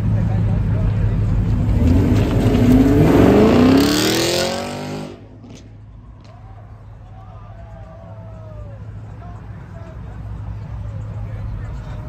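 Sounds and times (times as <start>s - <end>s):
car engine revving: 0.4s - 5.8s.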